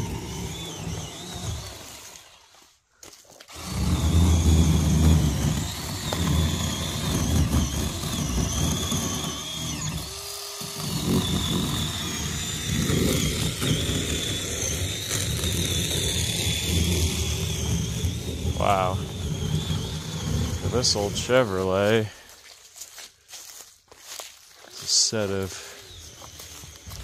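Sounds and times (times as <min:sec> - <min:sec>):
chainsaw cutting wood: 0:00.0 - 0:22.4, 0:24.7 - 0:27.0.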